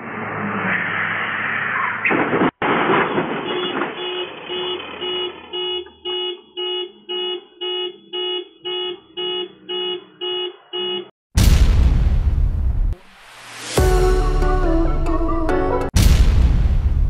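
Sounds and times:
truck crash impact: 1.0 - 5.6
car alarm honking: 3.1 - 11.2.

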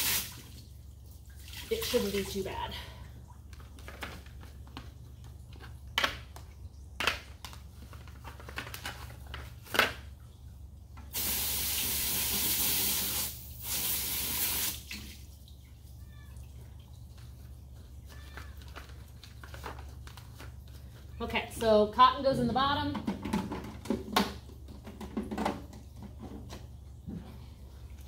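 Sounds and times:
hose nozzle spraying water: 0.0 - 0.4, 11.1 - 15.0.

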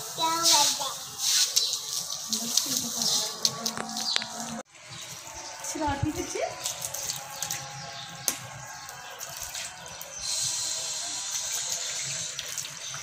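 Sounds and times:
hose spray hiss: 0.0 - 3.3, 10.2 - 12.7
water running from a hose: 0.0 - 13.0.

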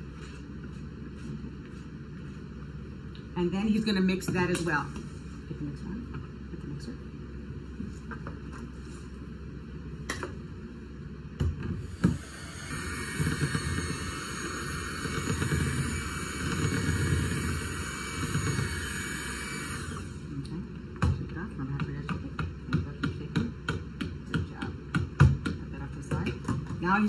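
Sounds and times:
electric mixer beating batter: 11.8 - 20.5.

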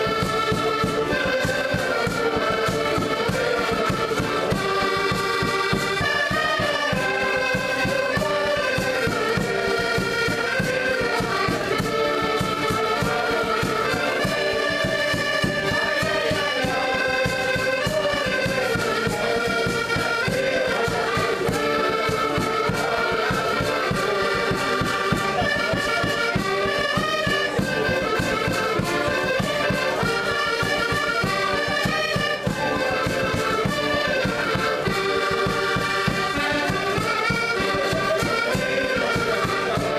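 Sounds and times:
accordions playing folk tune: 0.0 - 39.9.

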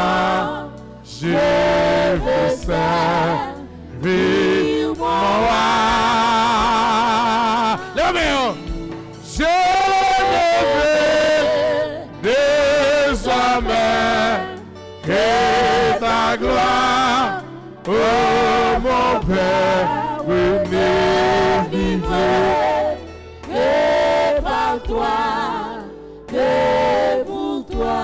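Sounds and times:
man singing a hymn: 5.0 - 8.6, 9.2 - 22.4.

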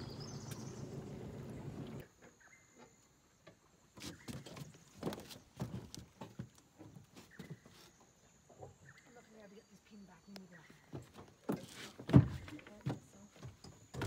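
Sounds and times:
outboard motor running: 0.0 - 2.0
knocks and clunks: 10.9 - 14.0.

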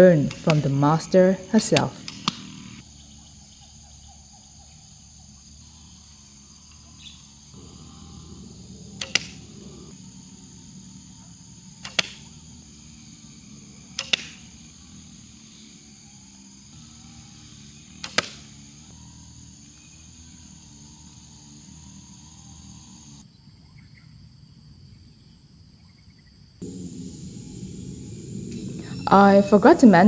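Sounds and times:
bowstring snapping: 1.8 - 2.5, 9.0 - 9.4, 11.8 - 12.3, 14.0 - 14.6, 18.0 - 18.5.

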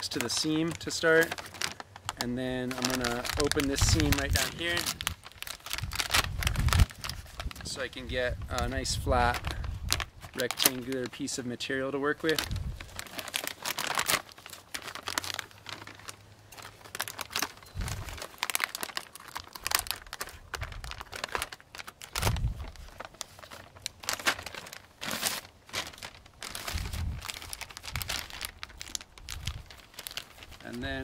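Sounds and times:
chip bag crinkling: 0.0 - 31.0
scissors cutting plastic bag: 2.6 - 7.1.

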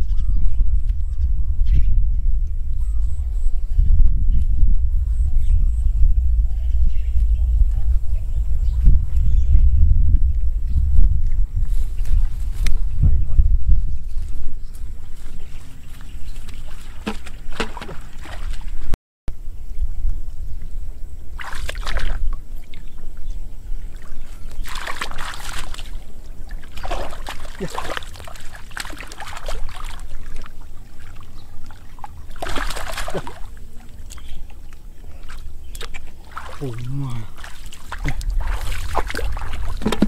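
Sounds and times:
steady low rumble: 0.0 - 17.5, 18.2 - 40.0
muddy water splashing: 15.3 - 18.9, 21.4 - 23.0, 23.8 - 40.0.

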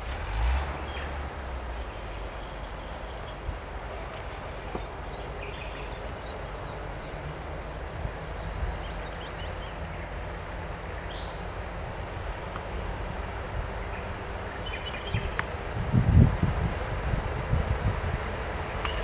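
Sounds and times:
electric locomotive rumble: 0.0 - 19.0
bird chirping: 0.8 - 10.2, 18.4 - 19.0.

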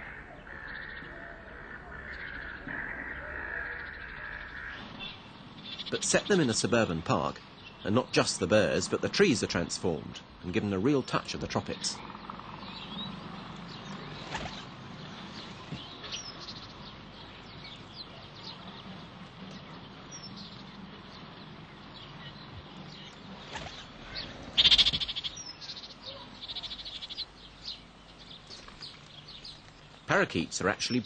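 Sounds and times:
parakeets calling: 0.0 - 31.0.

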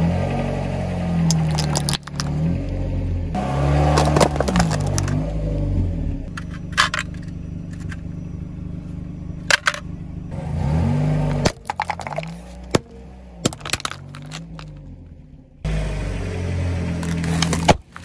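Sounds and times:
car engine idling and revving: 0.0 - 18.0
plastic cup cracking under tyre: 1.3 - 2.4, 3.9 - 5.2, 11.3 - 14.8, 17.0 - 18.0.

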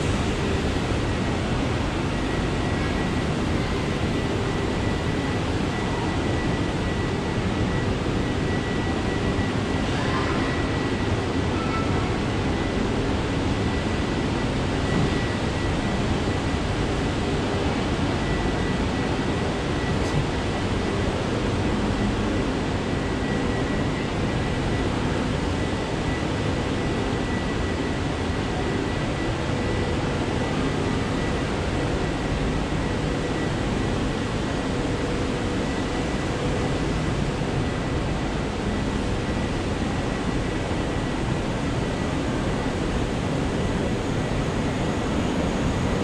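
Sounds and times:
station rumble and hiss: 0.0 - 46.0.

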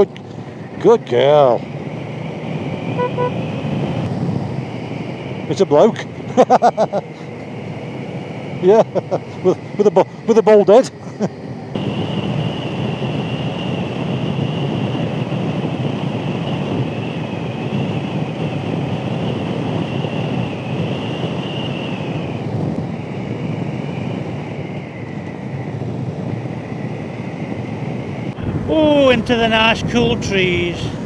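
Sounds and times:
motorcycle engine and road noise: 0.0 - 31.0
wind rushing on microphone: 0.0 - 31.0
thin high whine: 2.4 - 4.1.

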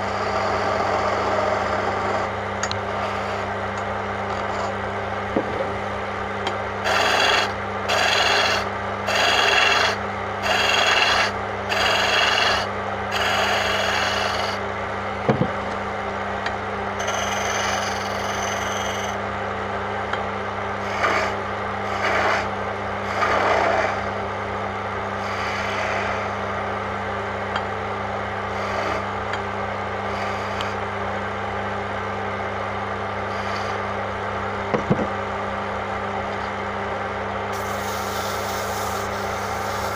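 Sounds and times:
tool scraping wood on lathe: 0.0 - 3.5, 4.3 - 4.8, 6.8 - 14.6, 17.0 - 19.2, 20.8 - 24.2, 25.2 - 26.4, 28.5 - 29.1, 30.1 - 30.8, 33.3 - 33.9
lathe motor humming: 0.0 - 15.8, 16.4 - 19.2, 20.8 - 24.2, 25.2 - 26.5.

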